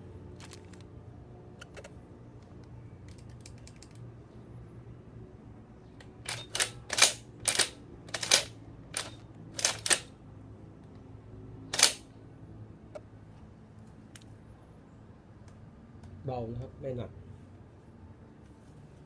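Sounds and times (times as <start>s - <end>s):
shotgun action metal clacks: 6.2s - 10.1s, 11.8s - 12.0s.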